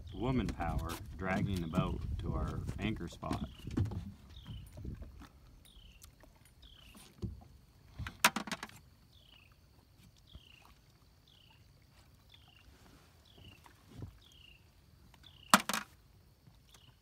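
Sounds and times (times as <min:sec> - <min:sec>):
knocks and clatter of line hauling: 0:00.1 - 0:04.7.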